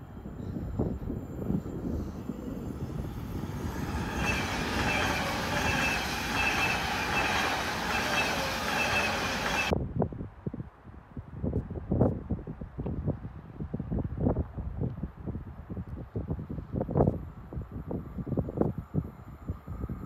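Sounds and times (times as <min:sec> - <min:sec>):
electric train passing: 0:00.0 - 0:09.7
wheels rushing on rail: 0:00.0 - 0:09.7
high hiss and squeal: 0:00.4 - 0:09.7.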